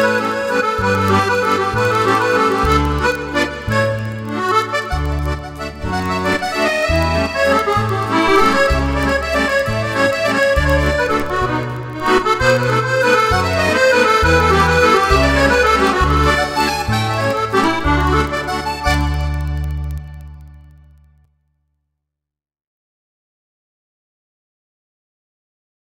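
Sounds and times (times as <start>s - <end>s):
accordion playing a waltz: 0.0s - 20.6s.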